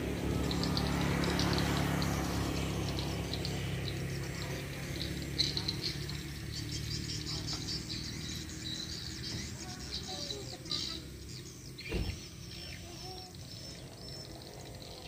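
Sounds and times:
birds chirping and twittering: 0:00.0 - 0:15.0
dull thump: 0:11.8 - 0:12.2.

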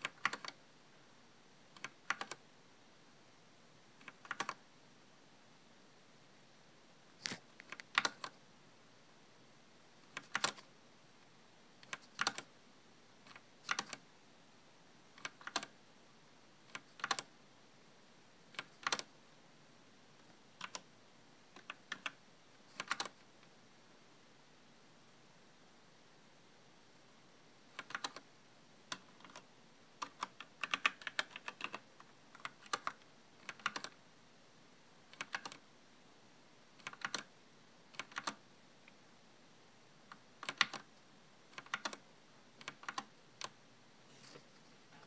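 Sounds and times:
mechanical keyboard keystrokes: 0:00.0 - 0:00.6, 0:01.8 - 0:02.4, 0:04.0 - 0:04.6, 0:07.3 - 0:08.4, 0:10.1 - 0:10.6, 0:11.8 - 0:12.5, 0:13.3 - 0:14.0, 0:15.2 - 0:15.7, 0:16.7 - 0:17.3, 0:18.6 - 0:19.1, 0:20.6 - 0:20.8, 0:21.6 - 0:23.2, 0:27.8 - 0:28.2, 0:28.9 - 0:29.4, 0:30.0 - 0:34.0, 0:35.1 - 0:35.6, 0:36.8 - 0:37.3, 0:37.9 - 0:38.4, 0:40.1 - 0:40.9, 0:41.5 - 0:42.0, 0:42.6 - 0:43.5.

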